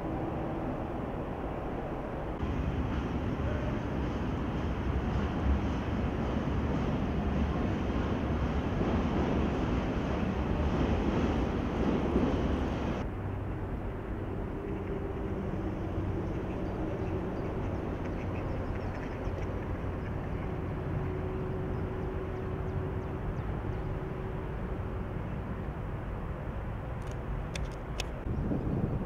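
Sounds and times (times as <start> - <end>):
low outdoor rumble: 0.0 - 29.0.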